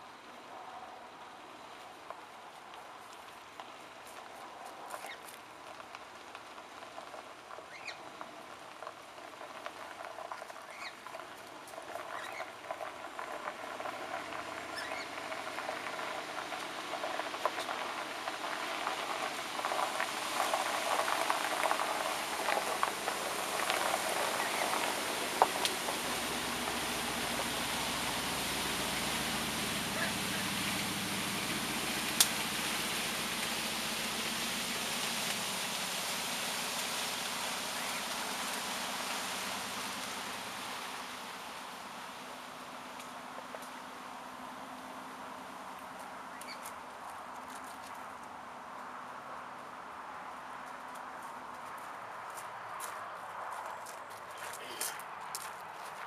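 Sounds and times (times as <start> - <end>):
bush crackling and rustling: 1.8 - 43.9
truck rumbling: 4.8 - 52.0.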